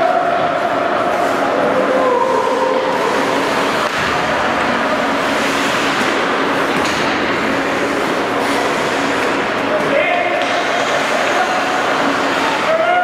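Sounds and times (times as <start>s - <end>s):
faint voices: 0.0s - 5.5s
ice hockey rink din: 0.0s - 13.0s.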